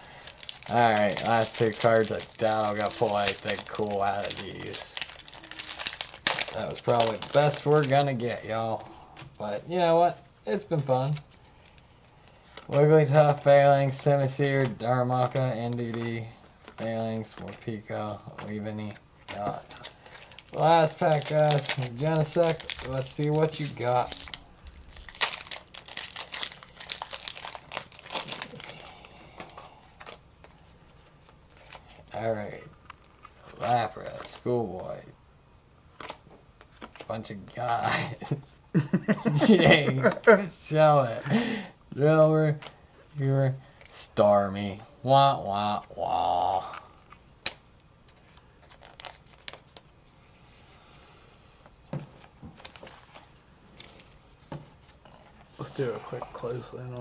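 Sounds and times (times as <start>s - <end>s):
foil wrapper crinkling: 0.0s - 8.3s, 19.3s - 29.2s, 48.6s - 49.9s.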